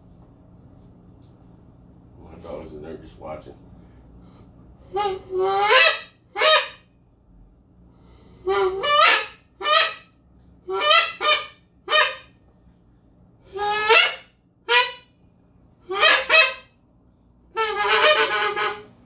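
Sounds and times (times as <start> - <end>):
wooden goose call honking: 4.9 - 6.8, 8.4 - 10.1, 10.7 - 12.3, 13.5 - 15.1, 15.8 - 16.7, 17.5 - 19.0.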